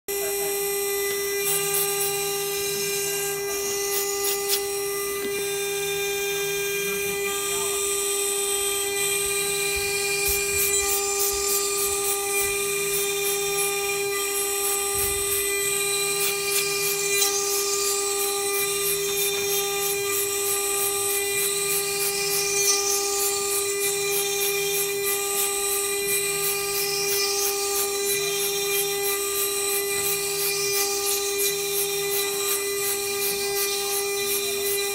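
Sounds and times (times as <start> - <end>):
spindle grinding whine: 0.1 - 34.9.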